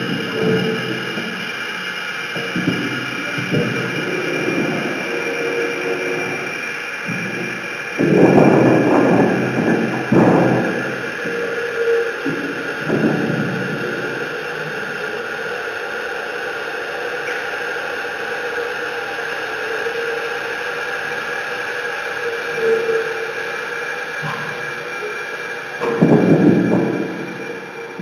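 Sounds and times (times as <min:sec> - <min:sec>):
hissing noise drone: 0:00.0 - 0:28.0.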